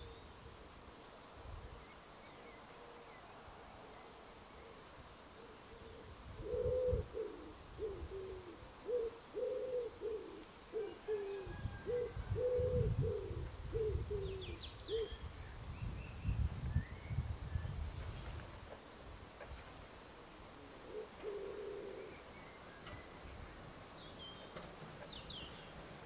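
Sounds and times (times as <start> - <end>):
pigeon cooing: 5.4 - 15.2, 20.6 - 22.2.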